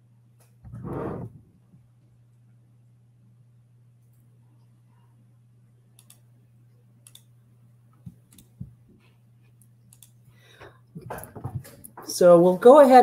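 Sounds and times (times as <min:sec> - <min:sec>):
steady low hum: 0:00.0 - 0:13.0
faint computer clicks: 0:06.0 - 0:06.3, 0:07.0 - 0:07.3, 0:09.6 - 0:10.2.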